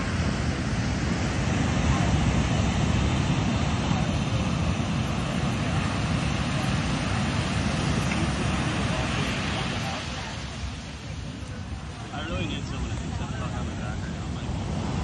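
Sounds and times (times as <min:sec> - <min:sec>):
surf washing onto beach: 0:00.0 - 0:15.0
wind buffeting microphone: 0:00.0 - 0:15.0.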